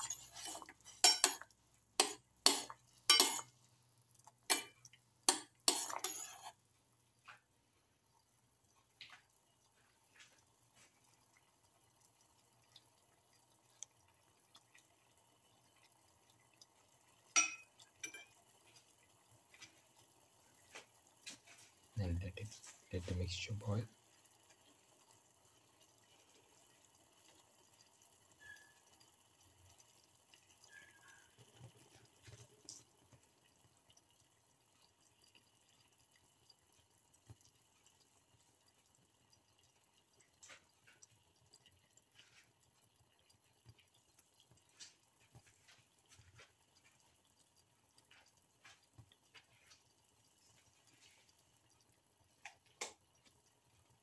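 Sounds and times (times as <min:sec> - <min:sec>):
water bubbling at a boil: 0:00.0 - 0:54.0
small pops: 0:52.3 - 0:53.6.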